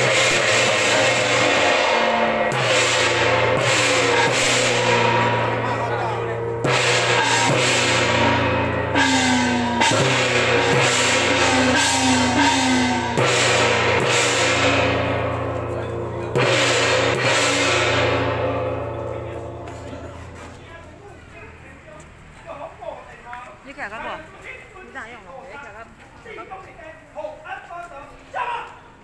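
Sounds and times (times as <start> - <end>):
cymbals and gongs crashing: 0.0 - 21.9.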